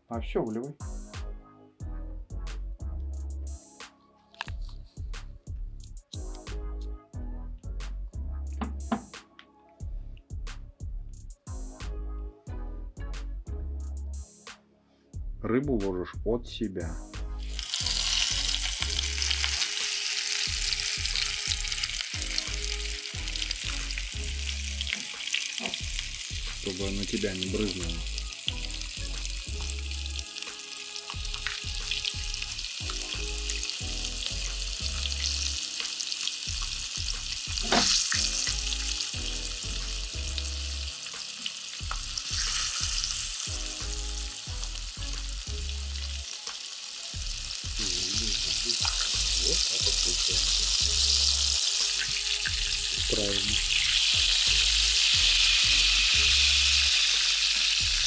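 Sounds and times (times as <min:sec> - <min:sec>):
fish sizzling in hot oil: 0:17.4 - 0:58.0.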